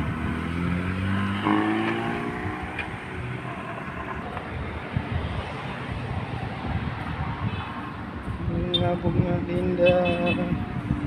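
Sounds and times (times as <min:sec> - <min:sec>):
car engine accelerating: 0:00.0 - 0:04.3
road traffic noise: 0:00.0 - 0:11.0.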